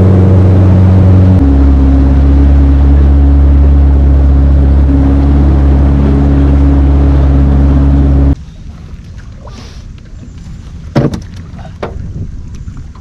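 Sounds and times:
motorboat engine running: 0.0s - 9.0s.

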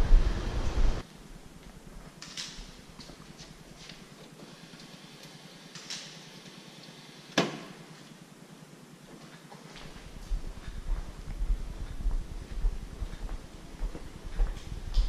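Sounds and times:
footsteps on hard floor: 9.0s - 15.0s.

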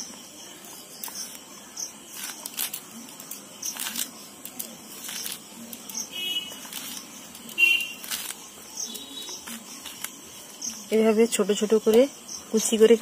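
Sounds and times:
knife cutting pineapple: 0.7s - 10.9s.

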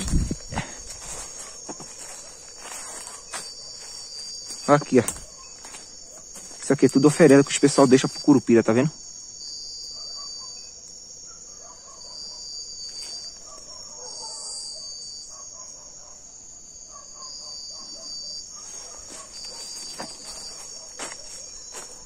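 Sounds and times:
footsteps crunching in leaf litter: 0.0s - 8.2s, 18.6s - 22.0s
crickets trilling: 0.0s - 22.0s
faint insect chirping: 0.0s - 22.0s.

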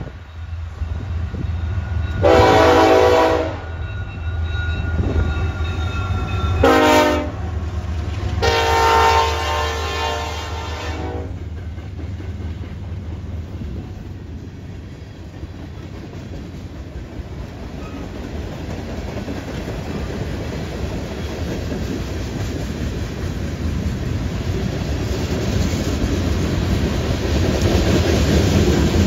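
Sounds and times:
low rumble of locomotives: 0.0s - 29.0s
locomotive horn blasts: 2.2s - 3.8s, 6.6s - 7.5s, 8.4s - 11.4s.

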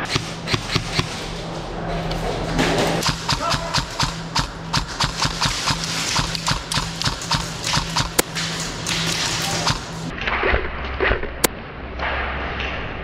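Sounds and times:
airsoft rifle shots clicking: 0.0s - 1.2s, 3.0s - 8.3s
low hum: 0.0s - 12.3s
sharp crack: 3.0s - 10.5s.

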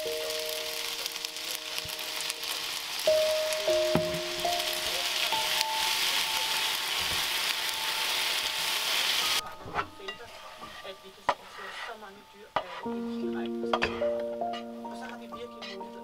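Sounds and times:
vegetables sizzling in frying pan: 0.0s - 16.0s
spatula scraping pan: 8.4s - 13.1s.

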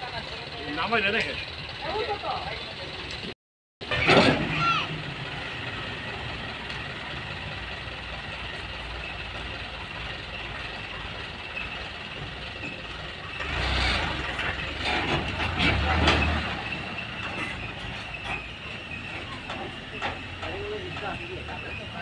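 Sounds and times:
diesel truck engine labouring: 0.0s - 22.0s.

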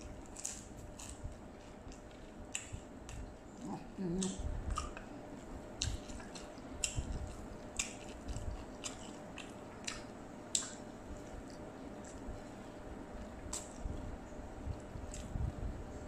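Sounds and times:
wet chewing: 0.0s - 5.2s, 5.8s - 12.5s, 14.7s - 15.4s
lip smacks: 4.2s - 5.1s, 8.8s - 10.8s.

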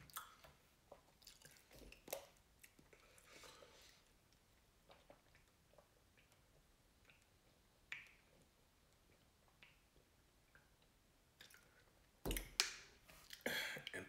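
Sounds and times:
soft drinking gulps: 0.1s - 12.2s.

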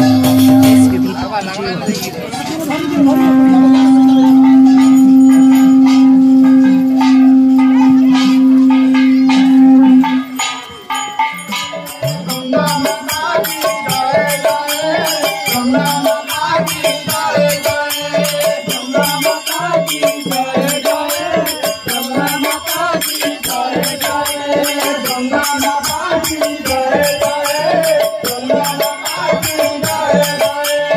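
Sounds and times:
long held note: 0.0s - 1.3s, 2.7s - 10.5s
men singing into microphones: 0.0s - 10.4s, 11.7s - 30.9s
barrel drum beat: 0.0s - 30.9s
jingling hand percussion: 0.0s - 30.9s.

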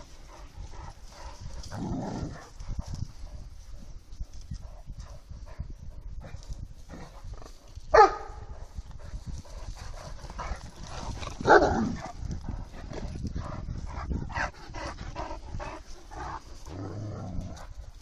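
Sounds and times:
dog barking: 7.9s - 8.5s.

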